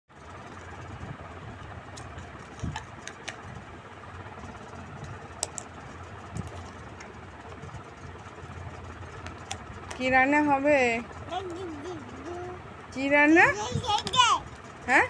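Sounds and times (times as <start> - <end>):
steady low hum: 0.1 - 15.0
toy dishes clicking and tapping: 14.0 - 14.3.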